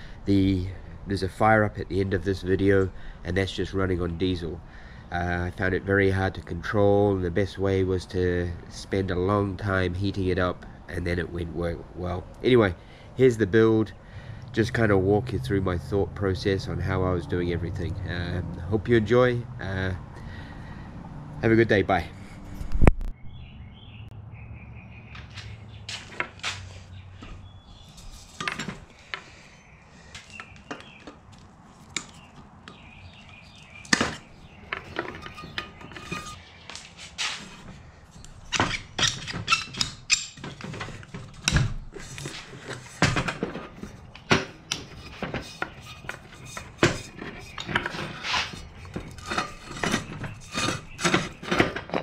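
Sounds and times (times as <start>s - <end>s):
metal parts clinking and knocking: 27.9s - 29.2s, 33.8s - 36.4s, 38.5s - 52.0s.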